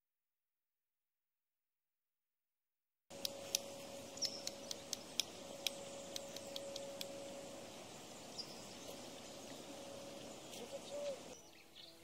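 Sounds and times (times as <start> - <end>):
high-pitched ticks: 3.1 - 7.3
faint steady hum: 3.1 - 11.5.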